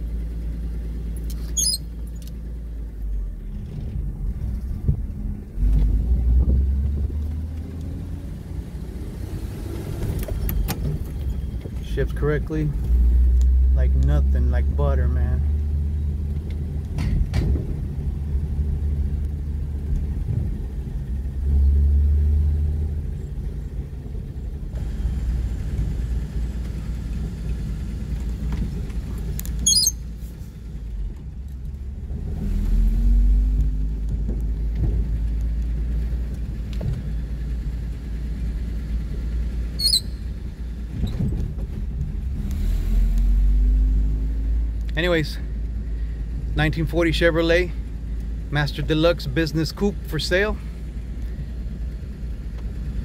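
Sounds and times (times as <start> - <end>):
car engine running: 0.0 - 53.0
road rumble: 0.0 - 53.0
high squeaks: 1.4 - 1.9, 29.6 - 30.1, 39.8 - 40.3.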